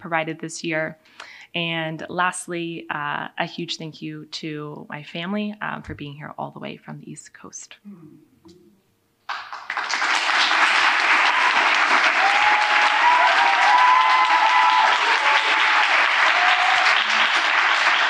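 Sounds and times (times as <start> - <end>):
audience applauding: 9.3 - 18.0
people cheering: 9.3 - 18.0.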